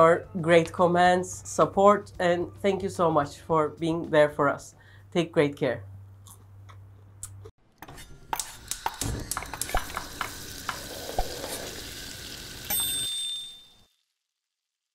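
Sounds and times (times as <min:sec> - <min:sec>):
food sizzling in oil: 0:08.4 - 0:13.1
bright ringing tone: 0:12.4 - 0:14.0.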